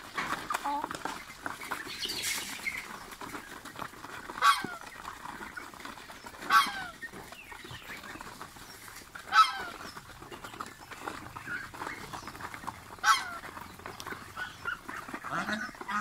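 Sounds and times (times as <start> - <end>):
birds pecking and scuffling: 0.0 - 16.0
fowl calling: 4.4 - 4.9, 6.4 - 7.0, 9.3 - 9.8, 13.0 - 13.6, 14.3 - 16.0.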